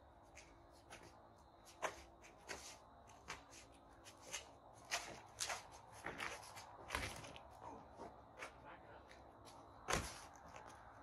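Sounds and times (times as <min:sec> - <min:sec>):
sneakers scuffing on concrete: 0:00.2 - 0:08.6
gloved punches thudding: 0:09.9 - 0:10.2.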